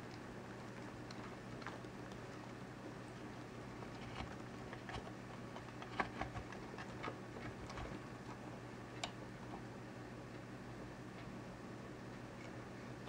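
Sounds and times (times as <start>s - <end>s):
faint low hum: 0.0s - 13.0s
tortoise shells clicking on wood: 3.8s - 8.4s.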